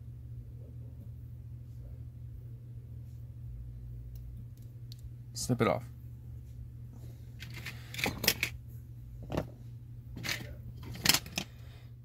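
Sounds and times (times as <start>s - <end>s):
tools clicking and rustling: 7.4s - 8.6s, 10.2s - 11.5s.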